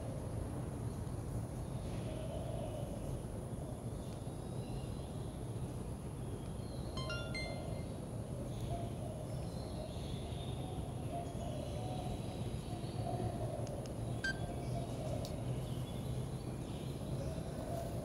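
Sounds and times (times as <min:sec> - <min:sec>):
outdoor background hum: 0:00.0 - 0:18.0
faint bird chirps: 0:14.1 - 0:16.0.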